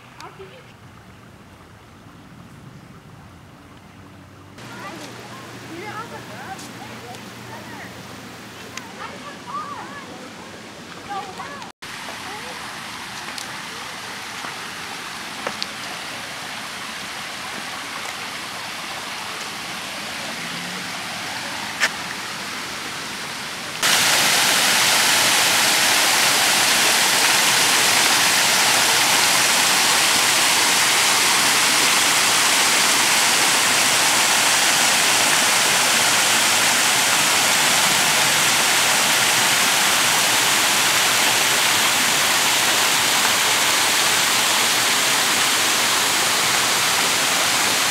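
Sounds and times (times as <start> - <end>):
creek water over stone weirs: 0.0 - 47.9
small waterfall rushing: 4.6 - 47.9.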